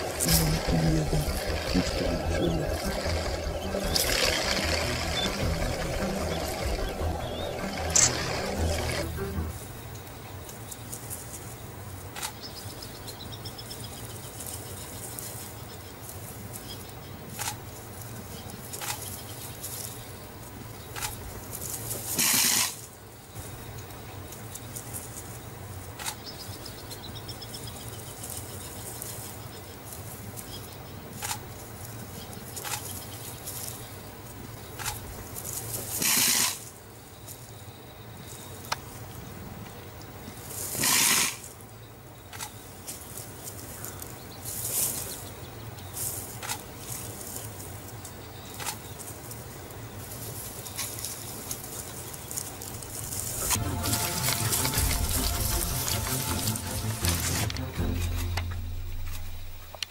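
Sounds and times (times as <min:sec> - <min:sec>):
steady low hum: 0:00.0 - 0:10.6, 0:52.7 - 0:59.9
porcupine rattling quills: 0:42.3 - 0:59.9.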